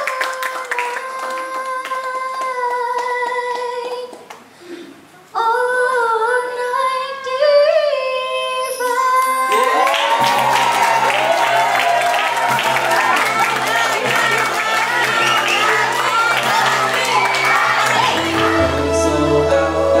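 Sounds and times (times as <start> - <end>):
applause: 0.0 - 4.5, 9.5 - 18.4
people clapping along: 0.0 - 4.5, 9.5 - 18.7
girl singing into a microphone: 0.0 - 9.6.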